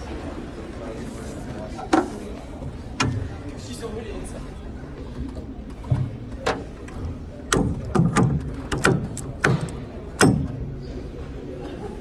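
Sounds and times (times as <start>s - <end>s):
sharp irregular knocks: 7.5s - 10.6s.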